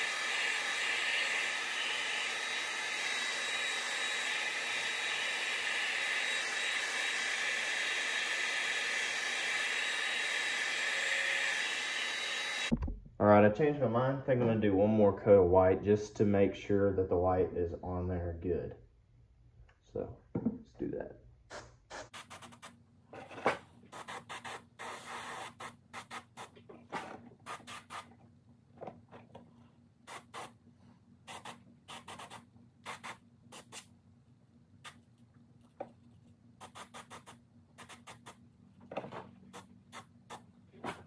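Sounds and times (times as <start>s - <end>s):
airbrush hissing bursts: 27.5s - 28.1s.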